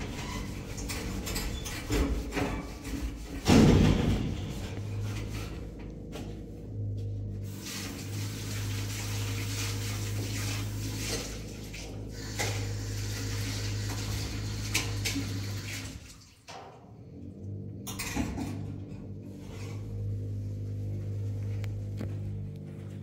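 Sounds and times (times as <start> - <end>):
constant low hum: 0.0 - 15.6, 16.5 - 23.0
water running: 7.4 - 16.8.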